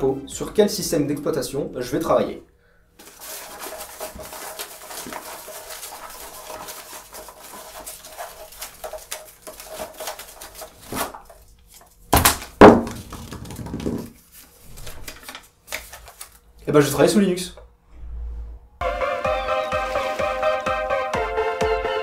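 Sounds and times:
paper rustling: 0:03.0 - 0:16.6, 0:19.7 - 0:20.6.

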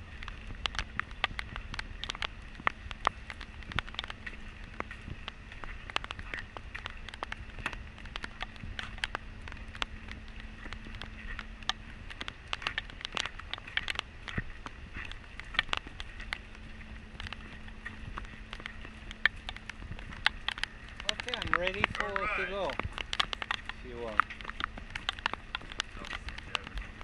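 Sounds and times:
rain on a boat deck: 0:00.0 - 0:27.0.

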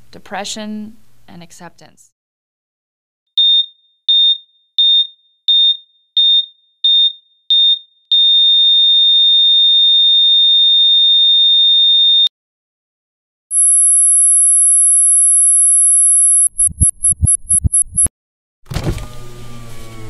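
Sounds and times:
heart monitor beeps: 0:03.4 - 0:08.8, 0:13.5 - 0:18.1
heart monitor flatline tone: 0:13.5 - 0:18.1.

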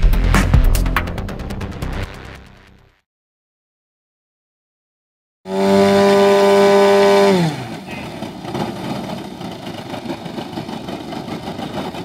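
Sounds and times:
model plane engine revving: 0:05.5 - 0:09.8.

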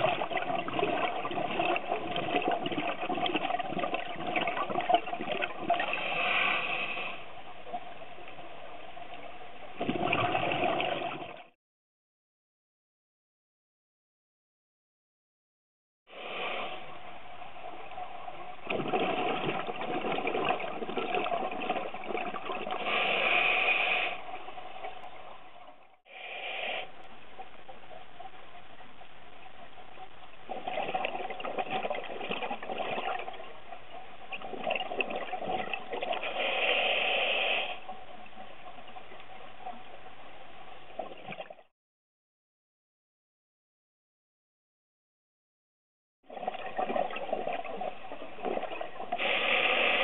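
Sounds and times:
exhaled bubbles rushing: 0:00.0 - 0:06.0, 0:09.7 - 0:11.6, 0:17.6 - 0:23.0, 0:30.3 - 0:36.3, 0:40.9 - 0:41.7, 0:46.3 - 0:49.4
muffled regulator hiss: 0:26.1 - 0:27.2, 0:36.3 - 0:37.8, 0:49.2 - 0:50.0.

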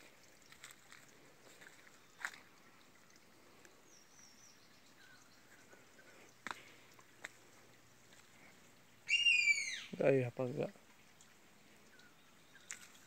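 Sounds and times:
footsteps in undergrowth: 0:00.4 - 0:02.5
high wavering chirp: 0:09.1 - 0:10.0.

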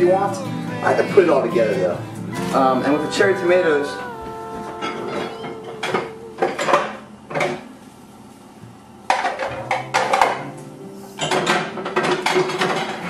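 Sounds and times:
dishes and utensils clattering: 0:04.6 - 0:07.7, 0:09.1 - 0:13.0.

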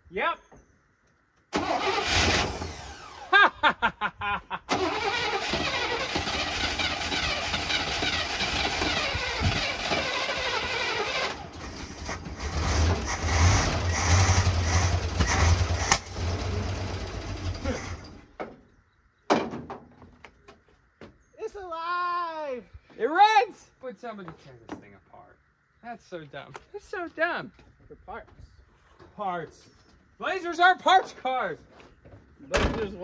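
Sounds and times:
engine cranking and sputtering: 0:01.6 - 0:03.3, 0:04.7 - 0:18.4
engine running roughly: 0:04.7 - 0:18.2.

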